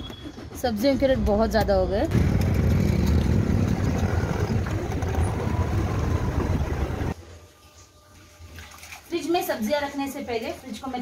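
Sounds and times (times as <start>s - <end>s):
car engine and road rumble: 1.2s - 7.2s.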